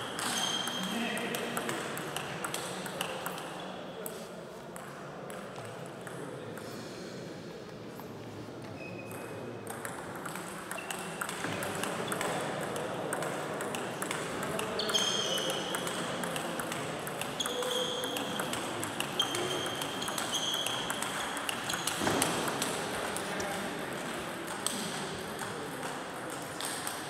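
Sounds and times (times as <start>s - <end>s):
clicks from other tables: 9.1s - 23.6s.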